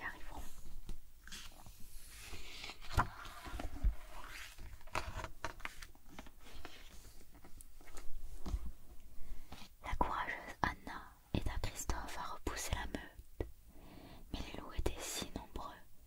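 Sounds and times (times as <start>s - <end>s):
stiff book page rustling: 0.4s - 8.7s.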